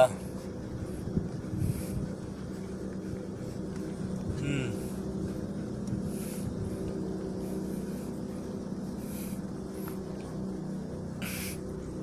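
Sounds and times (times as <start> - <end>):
low mechanical hum: 0.0 - 12.0
short hissing rustles: 11.2 - 11.7.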